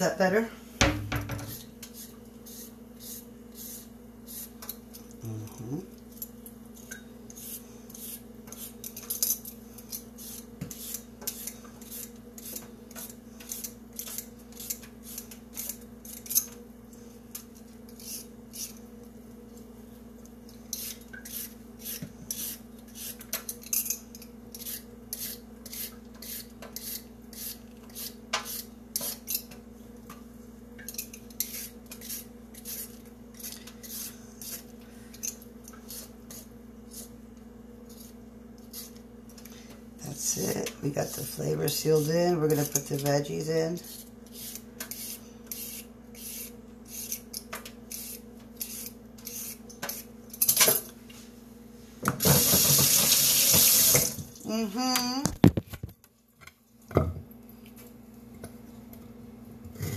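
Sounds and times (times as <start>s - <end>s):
peeler scraping carrots: 1.4s - 4.8s, 7.3s - 16.6s, 17.9s - 18.8s, 20.7s - 29.5s, 31.1s - 37.2s, 40.1s - 50.1s.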